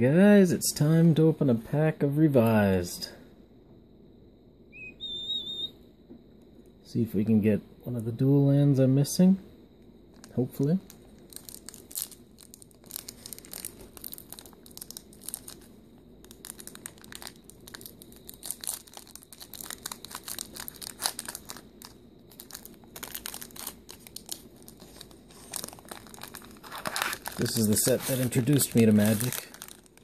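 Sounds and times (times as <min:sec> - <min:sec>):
wrapper crinkling and tearing: 0:10.1 - 0:30.0.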